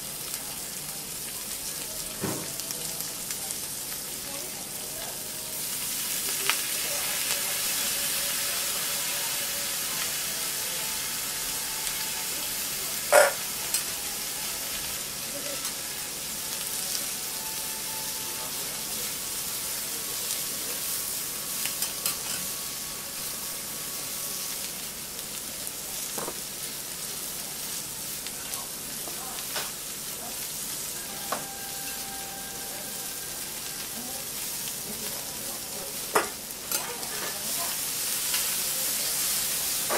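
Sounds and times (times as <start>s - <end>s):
noodles sizzling on a griddle: 0.0s - 39.9s.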